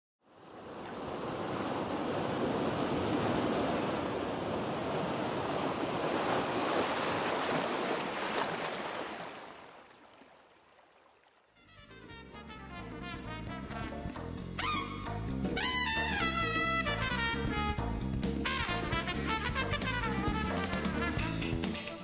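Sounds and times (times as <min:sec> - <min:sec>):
sea waves washing in: 0:00.4 - 0:10.8.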